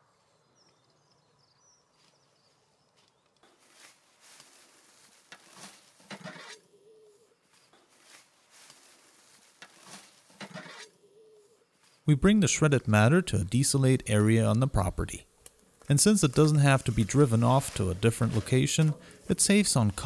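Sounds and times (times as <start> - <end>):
fork rustling dry grass: 3.4 - 6.7, 7.4 - 10.9, 15.8 - 20.0
grass tossed into metal wheelbarrow: 3.5 - 6.5, 7.5 - 10.8, 16.2 - 19.1.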